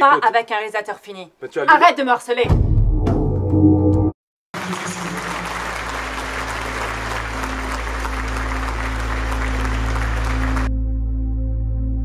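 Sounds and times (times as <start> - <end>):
audience applauding: 4.6 - 10.7.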